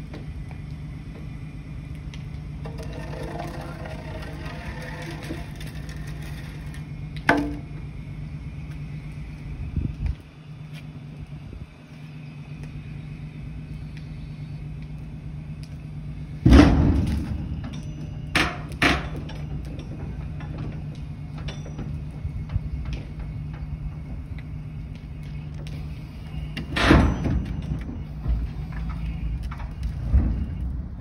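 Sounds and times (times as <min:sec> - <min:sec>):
forklift motor hum: 0:00.0 - 0:31.0
shipping container banging: 0:02.6 - 0:07.8, 0:16.4 - 0:24.0, 0:26.6 - 0:29.0.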